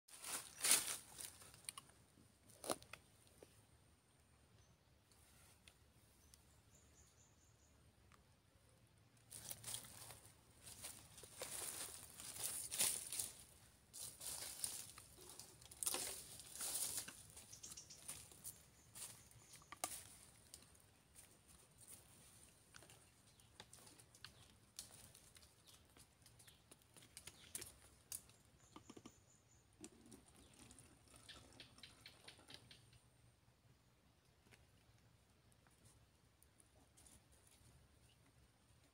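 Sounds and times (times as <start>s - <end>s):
dry leaves and sand rustling: 0.1s - 3.1s, 9.2s - 29.0s.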